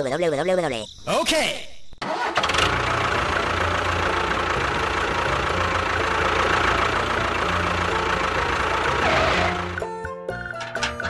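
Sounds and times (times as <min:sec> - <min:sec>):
engine running steadily: 0:02.3 - 0:09.9.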